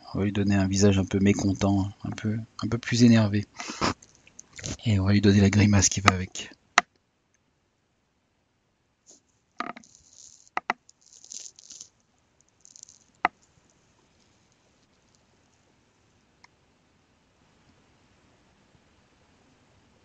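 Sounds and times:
stylus scratching on screen: 0:09.6 - 0:11.9.

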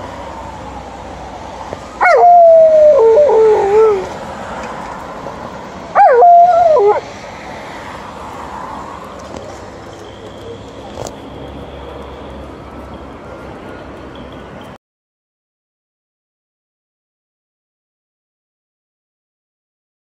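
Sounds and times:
dog howling: 0:02.0 - 0:04.1, 0:06.0 - 0:07.0.

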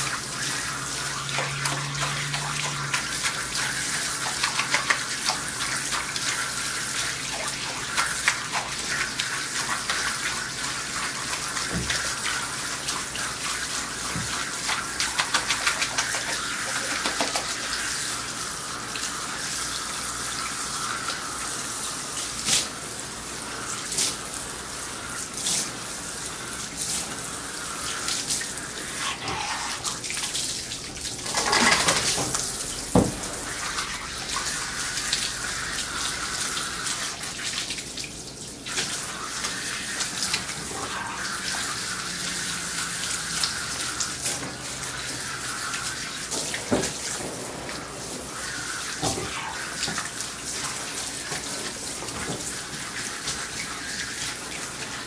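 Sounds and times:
water spattering into tub: 0:00.0 - 0:22.8, 0:23.6 - 0:55.0
water spraying from hose nozzle: 0:00.0 - 0:37.4.

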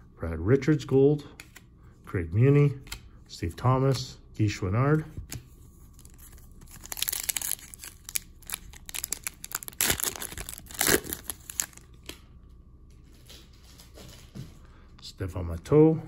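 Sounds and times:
foil pack tearing and crinkling: 0:06.0 - 0:11.8.

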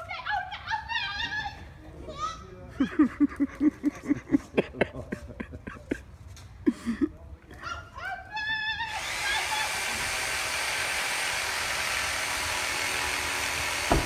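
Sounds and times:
power saw cutting: 0:08.9 - 0:14.0.

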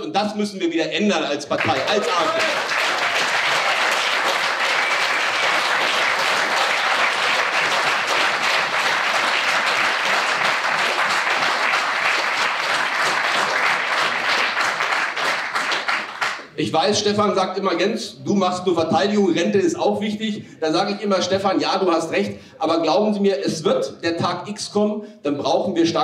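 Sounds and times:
audience applauding: 0:01.6 - 0:16.5.

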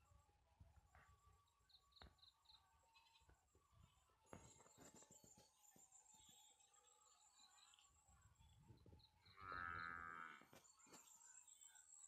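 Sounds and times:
cow mooing: 0:09.4 - 0:10.4.

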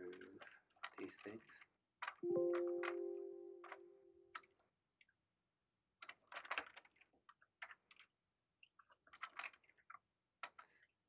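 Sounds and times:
faint keyboard typing: 0:00.0 - 0:04.6.

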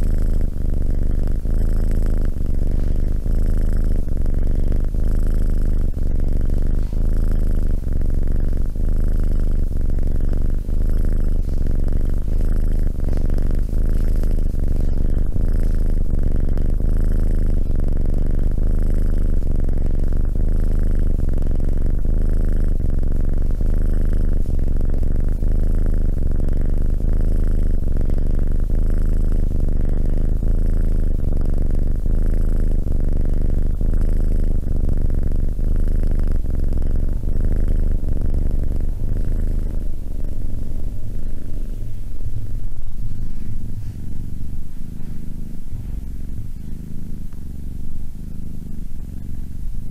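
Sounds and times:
kitten purring: 0:00.0 - 0:49.9.

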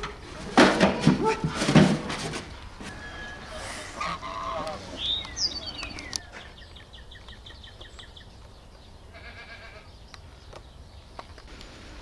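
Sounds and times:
lambs bleating: 0:09.1 - 0:09.9.

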